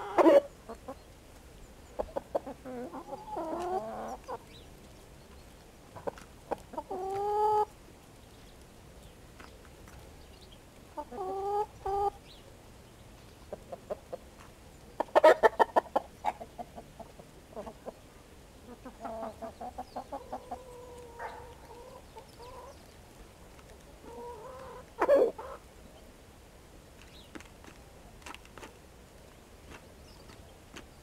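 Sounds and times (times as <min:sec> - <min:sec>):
chickens clucking: 0:00.0 - 0:07.8, 0:10.8 - 0:12.4, 0:13.2 - 0:25.8.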